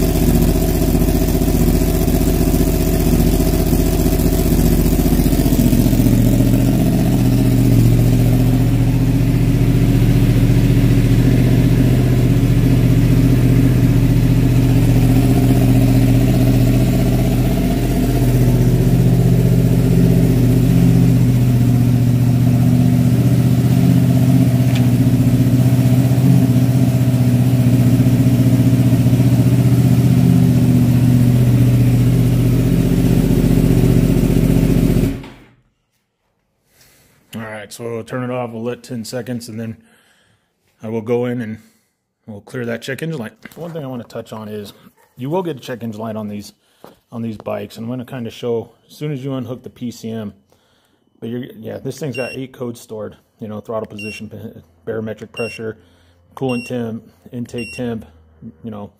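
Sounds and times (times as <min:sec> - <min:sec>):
motorcycle engine idling: 0:00.0 - 0:35.2.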